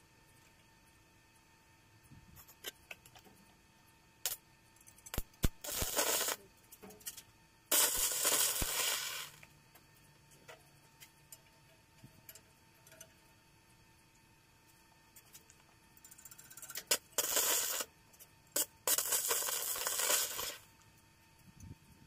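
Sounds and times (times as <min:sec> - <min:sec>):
welding arc crackling and hissing: 0:05.0 - 0:06.5, 0:07.7 - 0:09.5, 0:16.6 - 0:20.8.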